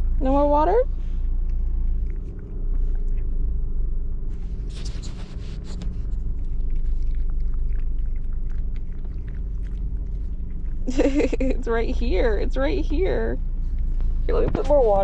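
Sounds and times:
car cabin rumble: 0:00.0 - 0:15.0
puppy lapping water: 0:01.4 - 0:03.6, 0:04.8 - 0:13.0
brief rustle: 0:04.3 - 0:06.1.

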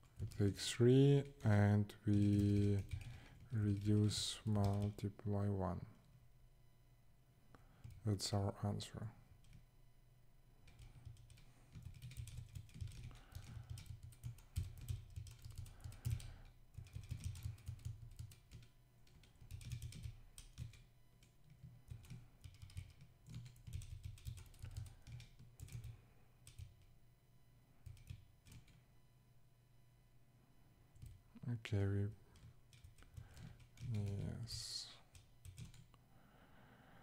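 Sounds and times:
typing on computer keyboard: 0:00.0 - 0:00.5, 0:01.3 - 0:05.1, 0:07.8 - 0:08.0, 0:09.4 - 0:09.6, 0:10.6 - 0:26.9, 0:27.8 - 0:28.8, 0:31.0 - 0:31.2, 0:32.3 - 0:36.0.

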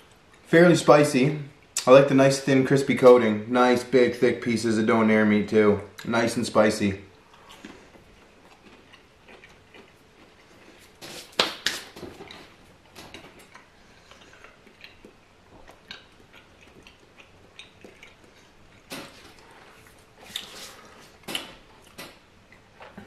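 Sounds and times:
chewing crispy food: 0:07.1 - 0:23.0.

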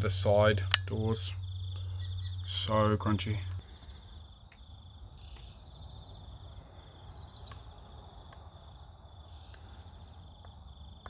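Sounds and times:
insects trilling: 0:00.0 - 0:11.0
soft ticks: 0:08.3 - 0:08.5.

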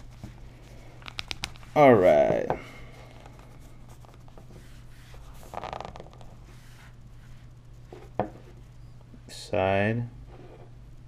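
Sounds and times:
steady low hum: 0:00.0 - 0:11.0
rustling scrape: 0:03.0 - 0:08.7.

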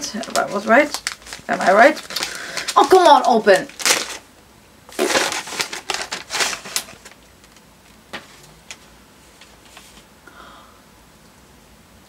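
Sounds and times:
wrapping paper tearing: 0:00.0 - 0:04.3, 0:04.9 - 0:07.6.

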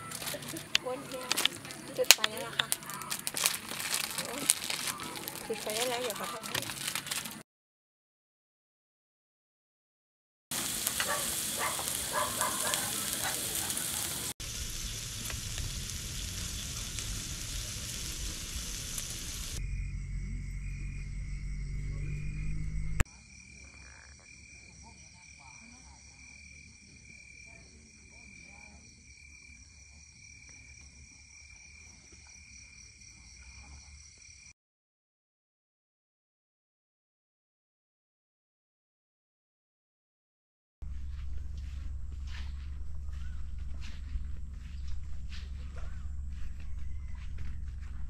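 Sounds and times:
crickets and insects trilling: 0:00.0 - 0:07.4, 0:10.6 - 0:34.5, 0:40.8 - 0:48.0
pot of broth simmering: 0:10.6 - 0:19.6
low rumble: 0:14.3 - 0:23.0, 0:40.8 - 0:48.0.

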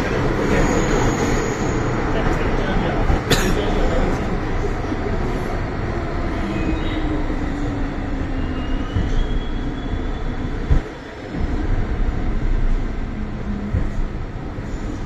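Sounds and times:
train wheels on rails: 0:00.0 - 0:15.0.

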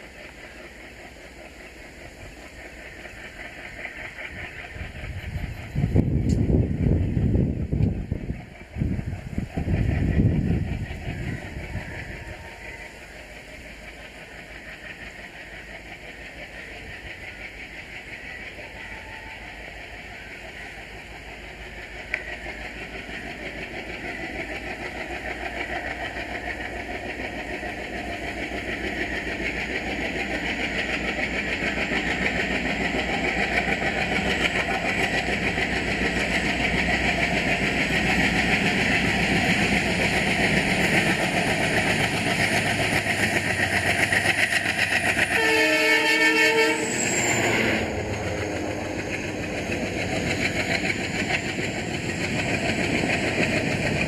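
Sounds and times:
diesel locomotive engine: 0:00.0 - 0:54.0
rail noise: 0:00.0 - 0:54.0
train horn blast: 0:45.3 - 0:47.9.

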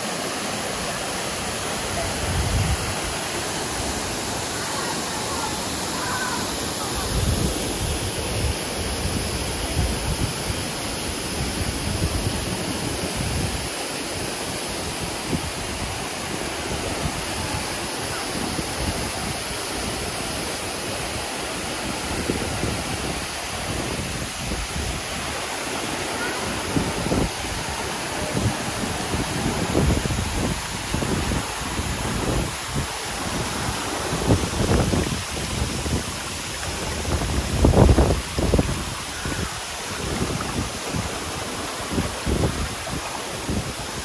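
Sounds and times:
water rushing: 0:00.0 - 0:44.0
wind buffeting on microphone: 0:01.8 - 0:03.2, 0:06.8 - 0:10.6, 0:26.4 - 0:44.0.

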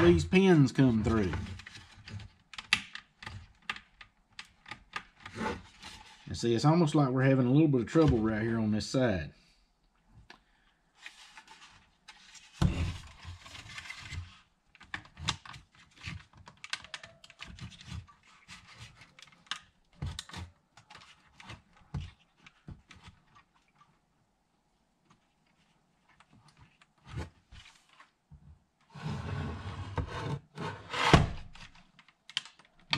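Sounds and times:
plastic clicks and rattles: 0:14.7 - 0:18.1, 0:31.6 - 0:32.9.

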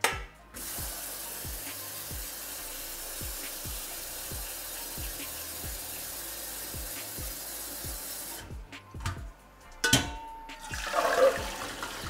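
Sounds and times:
background music with steady beat: 0:00.0 - 0:12.0
metal clank: 0:09.0 - 0:10.4
water and beans poured into colander: 0:10.7 - 0:12.0.

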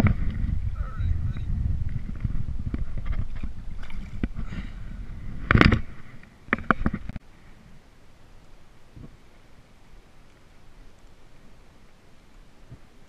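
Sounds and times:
camera handling rumble: 0:01.8 - 0:04.5, 0:05.4 - 0:07.2.

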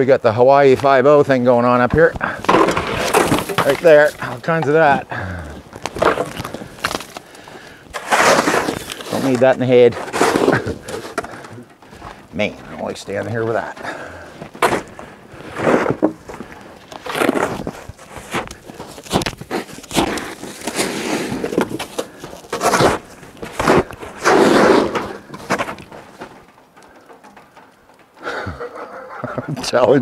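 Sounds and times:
shovel scraping snow: 0:07.9 - 0:11.2, 0:15.4 - 0:16.0, 0:17.1 - 0:25.7.

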